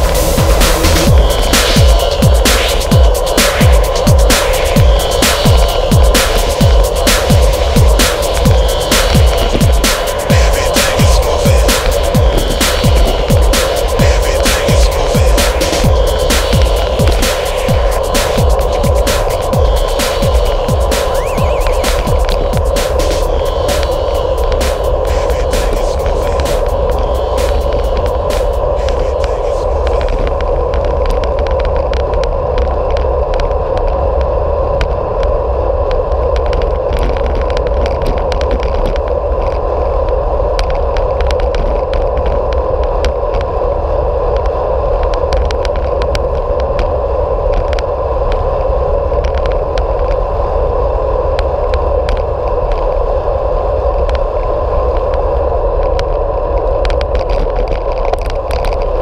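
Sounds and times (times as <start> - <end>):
bicycle tyre drone on tarmac: 0.0 - 59.0
deep wind rumble: 0.0 - 59.0
bicycle clicks and rattles: 55.8 - 59.0.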